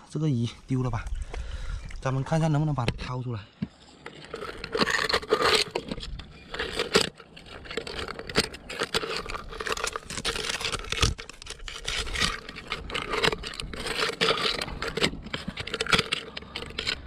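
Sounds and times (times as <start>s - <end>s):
metal rod scraping rock: 3.6s - 17.0s.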